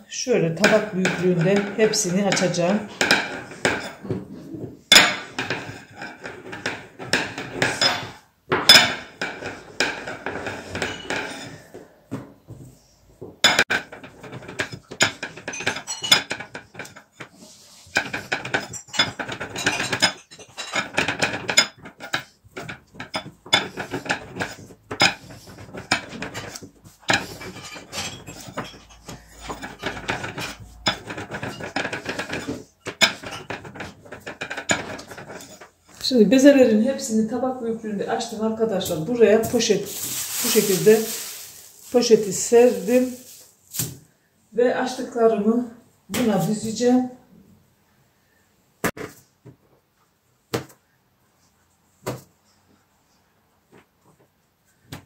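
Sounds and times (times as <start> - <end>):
rolling pin clattering on table: 0.5 - 12.6, 13.2 - 36.1.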